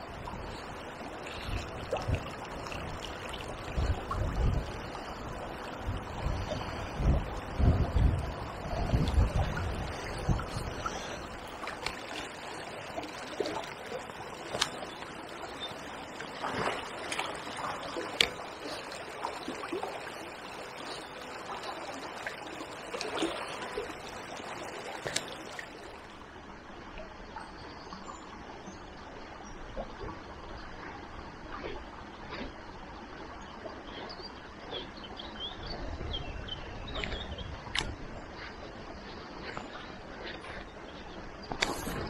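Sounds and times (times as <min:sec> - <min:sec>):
small water splashes: 0:00.0 - 0:26.2
small river trickling: 0:00.0 - 0:42.0.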